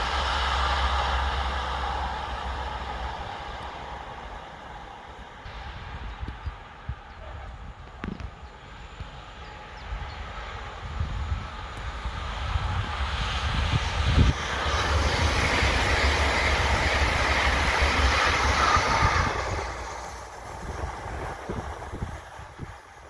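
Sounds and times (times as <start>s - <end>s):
train passing at speed: 0.0s - 23.0s.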